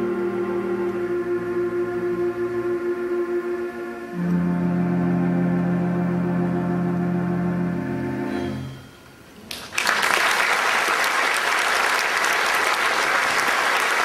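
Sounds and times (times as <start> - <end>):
pipe organ chord: 0.0 - 8.9
audience applause: 9.5 - 14.0.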